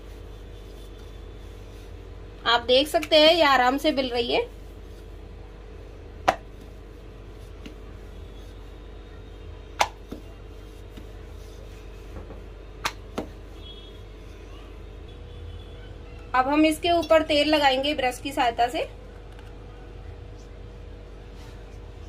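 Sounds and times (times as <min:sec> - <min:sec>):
steady low hum: 0:00.0 - 0:16.1.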